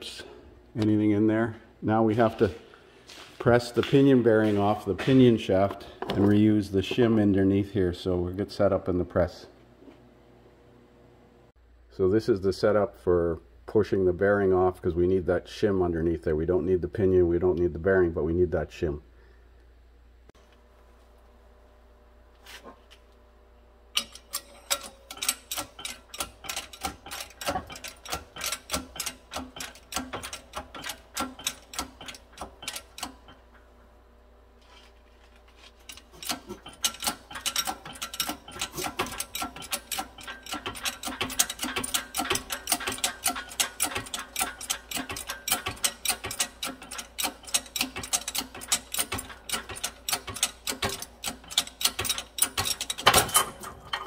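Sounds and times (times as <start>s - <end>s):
hydraulic press pump clicking: 24.0s - 33.5s, 35.8s - 54.0s.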